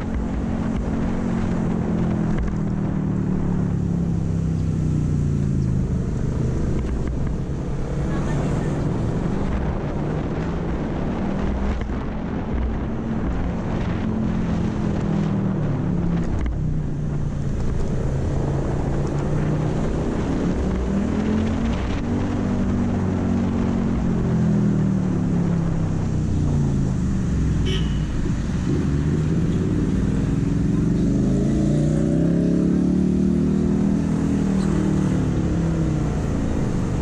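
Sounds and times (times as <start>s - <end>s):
wind rushing over microphone: 0.0s - 37.0s
scooter engine running: 26.6s - 31.0s.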